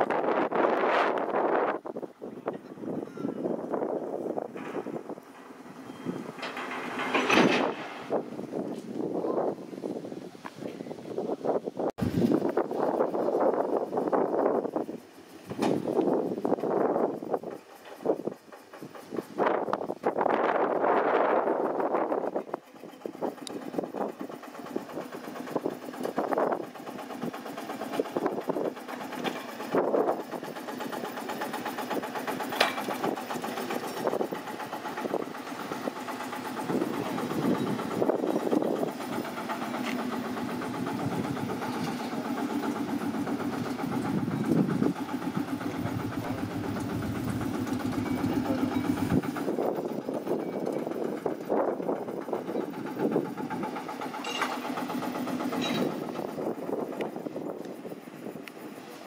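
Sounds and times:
engine running: 0.0 - 59.0.

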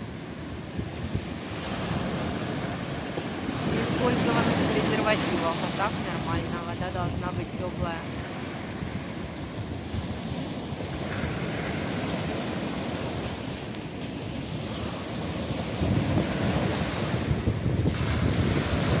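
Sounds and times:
waves breaking over stones: 0.0 - 19.0.

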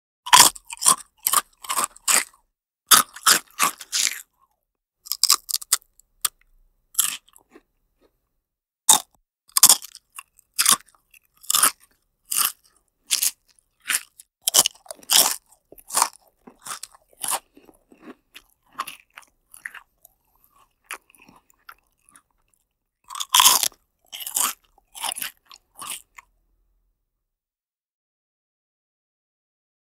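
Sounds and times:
person chewing crunchy food: 0.3 - 4.5, 5.1 - 8.2, 8.9 - 26.3.

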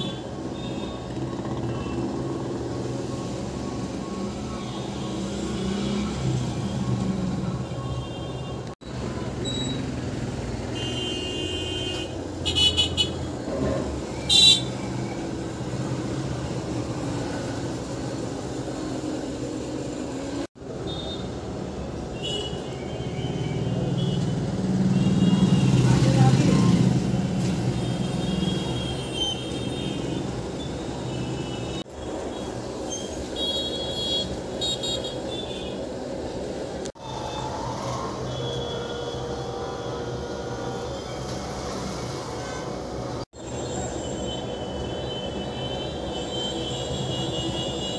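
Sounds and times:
road traffic noise: 0.0 - 47.9
vehicle horn toots: 10.7 - 13.2.

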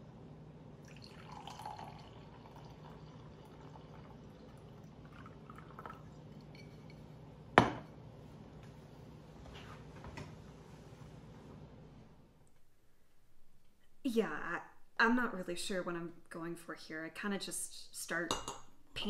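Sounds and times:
wine pouring into a glass: 0.8 - 7.0.

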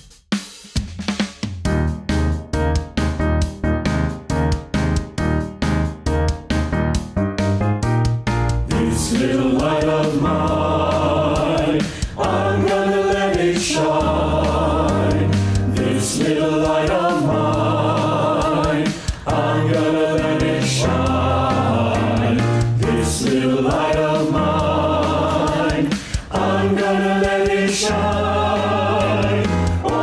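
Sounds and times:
mixed choir singing a hymn: 8.7 - 30.0.

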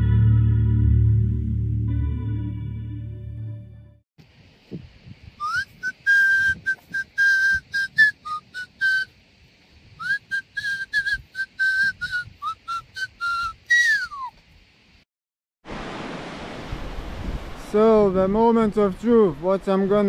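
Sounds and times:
person whistling a tune: 5.4 - 9.1, 10.0 - 14.4.

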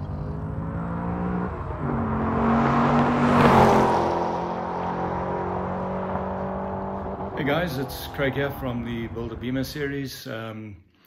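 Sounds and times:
car engine at high revs: 0.0 - 9.4.

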